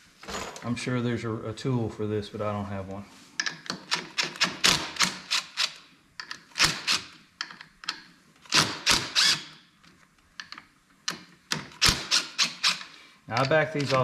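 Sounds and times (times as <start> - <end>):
power driver rattling bursts: 8.5 - 9.5, 11.5 - 12.9.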